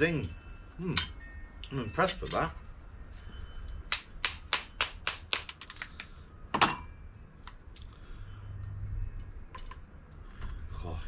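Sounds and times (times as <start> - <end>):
small bird singing: 0.0 - 2.2, 2.8 - 5.3, 6.8 - 9.4.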